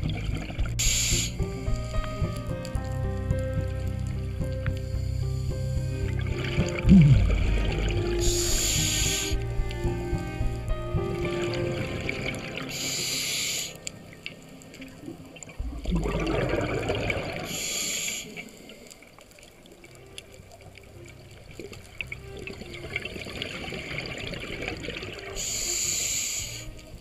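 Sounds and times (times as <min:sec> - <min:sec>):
exhaled bubbles rumbling: 0:00.0 - 0:12.9, 0:14.0 - 0:17.7, 0:19.7 - 0:25.5
regulator inhalation hiss: 0:00.8 - 0:01.4, 0:08.2 - 0:09.4, 0:12.7 - 0:13.8, 0:17.4 - 0:18.8, 0:25.4 - 0:26.8.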